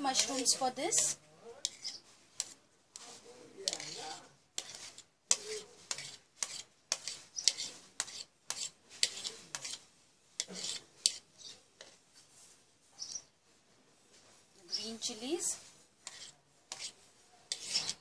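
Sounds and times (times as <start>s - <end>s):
fork scraping and tapping a plate: 0.1s - 9.8s, 10.4s - 12.0s, 16.0s - 18.0s.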